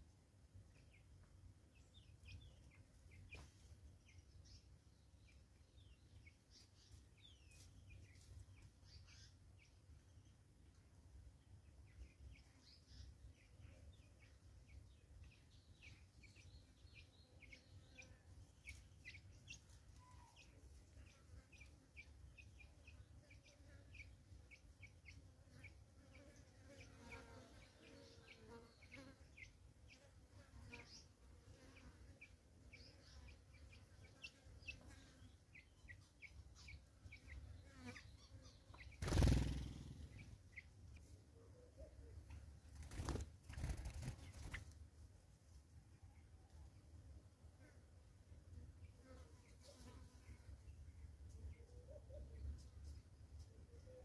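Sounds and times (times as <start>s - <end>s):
faint high bird chirps: 11.9s - 31.1s, 32.7s - 40.8s
flutter of bird wings: 38.9s - 40.3s, 42.6s - 44.8s.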